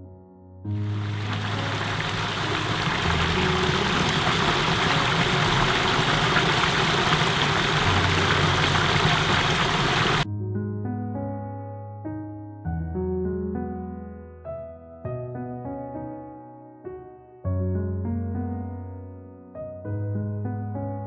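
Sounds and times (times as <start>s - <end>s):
water splashing over weir: 0.8s - 10.2s.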